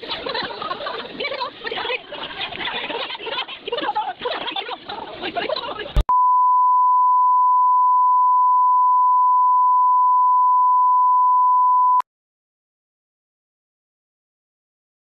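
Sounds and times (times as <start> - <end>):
high-pitched test tone beep: 6.1 - 12.0.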